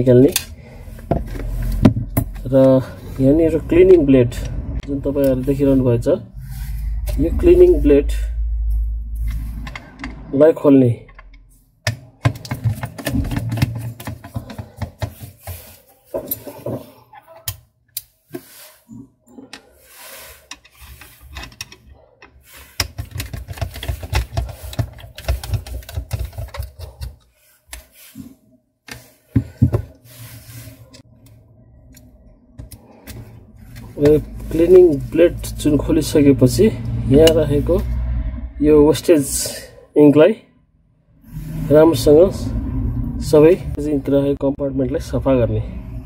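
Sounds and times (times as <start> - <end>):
tool clicking and scraping plastic: 11.1 - 16.9, 19.4 - 28.0, 30.8 - 35.6.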